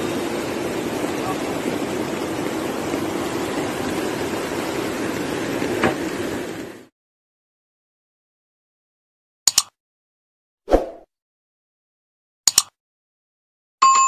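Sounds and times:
quick double click: 0:09.5 - 0:09.8, 0:12.5 - 0:12.8.

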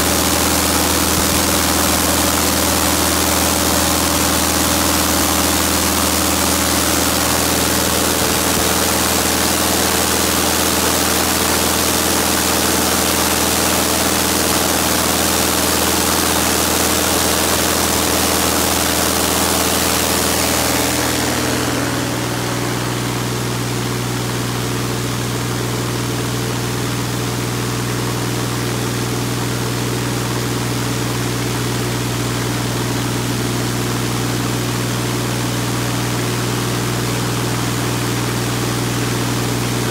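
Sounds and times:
aircraft engine running: 0:00.0 - 0:39.9
propeller wash rushing: 0:00.0 - 0:39.9.

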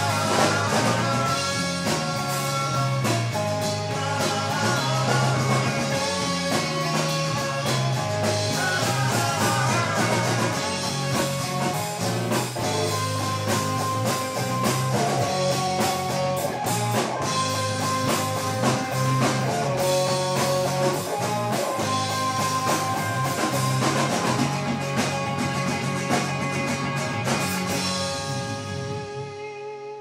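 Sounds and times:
rock band playing: 0:00.0 - 0:30.0.

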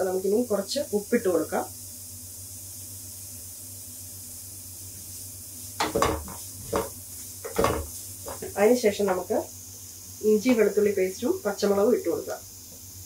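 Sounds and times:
spatula scraping a frying pan: 0:05.6 - 0:08.6.

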